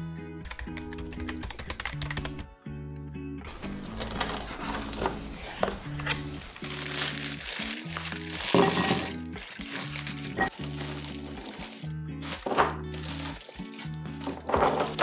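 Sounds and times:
background music with bass: 0:00.0 - 0:15.0
plastic bag crinkling: 0:03.5 - 0:15.0.

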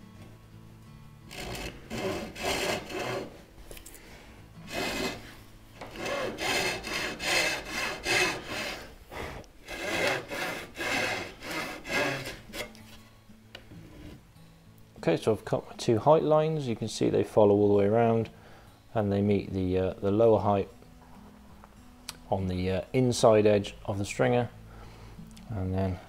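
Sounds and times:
hand saw rasping through wood: 0:01.3 - 0:03.4, 0:04.6 - 0:12.8.

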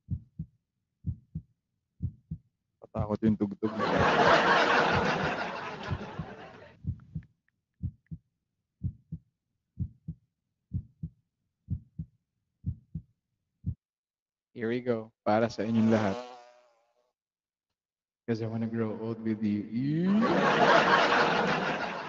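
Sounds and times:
heartbeat thumps: 0:00.0 - 0:03.3, 0:04.0 - 0:07.2, 0:07.8 - 0:08.2, 0:08.8 - 0:09.2, 0:09.8 - 0:13.8.

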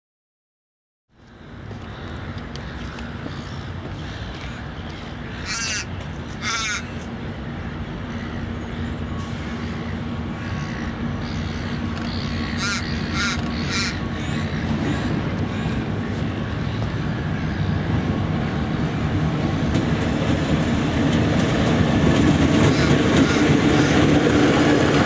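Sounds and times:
distant diesel locomotive drone: 0:01.1 - 0:25.0
bird harsh calls: 0:01.3 - 0:07.2, 0:08.0 - 0:17.8, 0:22.6 - 0:24.6.

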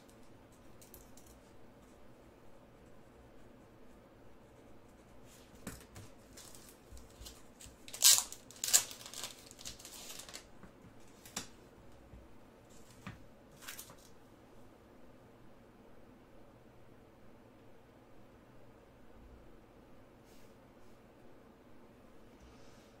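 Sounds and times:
card packaging crinkling and tearing: 0:06.3 - 0:10.5, 0:13.6 - 0:14.1.

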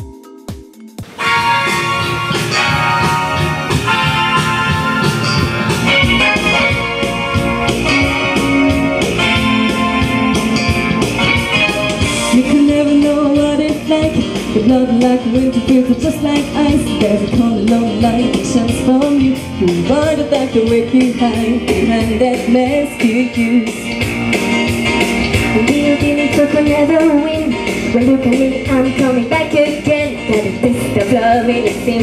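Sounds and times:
electric keyboard: 0:00.0 - 0:32.0
woman singing into microphone: 0:12.2 - 0:24.1, 0:25.5 - 0:32.0.

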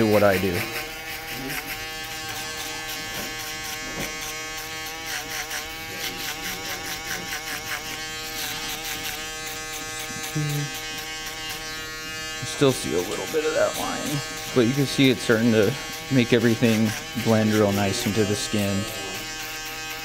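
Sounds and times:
electric shaver buzzing: 0:00.0 - 0:20.0.

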